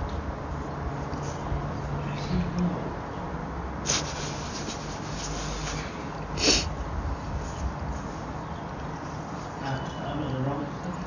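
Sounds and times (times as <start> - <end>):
rubbing and rustling: 3.8 - 6.6
short hisses: 3.8 - 6.7.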